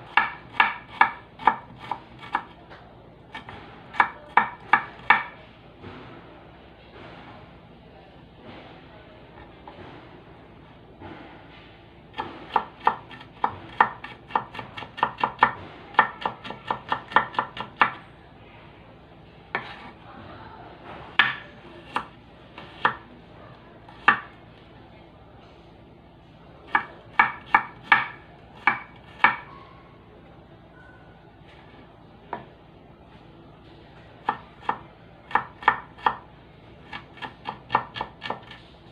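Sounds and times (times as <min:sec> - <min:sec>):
knife chopping on wooden board: 0:00.1 - 0:02.6, 0:03.3 - 0:05.3, 0:12.2 - 0:18.0, 0:19.5 - 0:19.9, 0:23.9 - 0:24.3, 0:26.7 - 0:29.5, 0:36.9 - 0:38.6.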